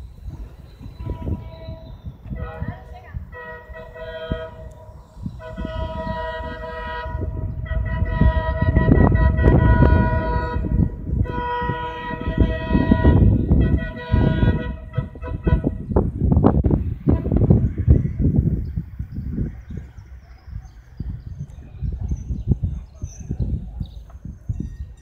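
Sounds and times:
heavy low rumble: 0.0 - 20.1
locomotive horn blasts: 0.7 - 16.3, 17.0 - 17.9.

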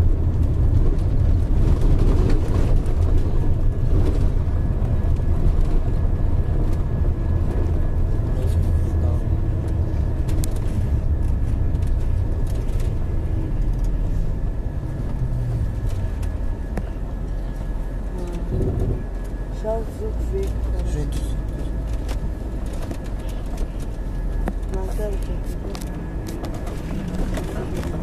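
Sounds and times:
engine and tyre rumble: 0.0 - 28.0.

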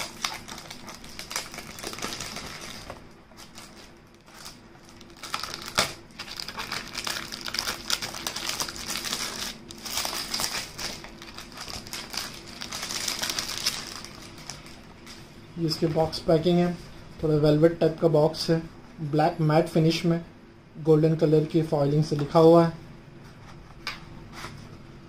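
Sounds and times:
cellophane crinkling and tearing: 0.0 - 15.2.

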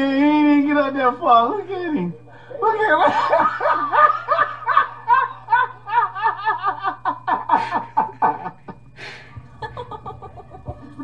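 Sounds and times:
man giggling: 2.5 - 11.0.

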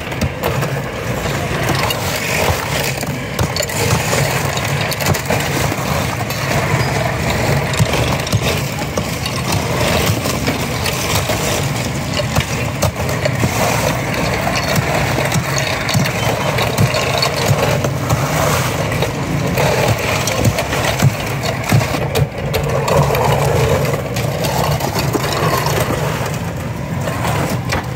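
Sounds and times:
ice chunks crunching and scraping: 0.0 - 27.9
steady engine hum: 0.0 - 27.9
hand saw rasping through ice: 0.2 - 22.0.

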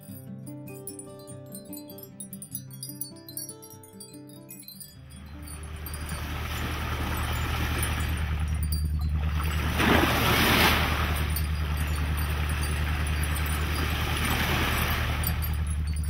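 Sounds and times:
ship engine drone: 5.2 - 16.0
water splashing along ship hull: 5.3 - 16.0.

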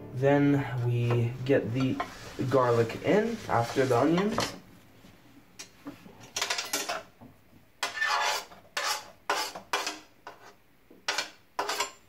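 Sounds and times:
utensil scraping frying pan: 1.6 - 4.6, 7.8 - 12.0.

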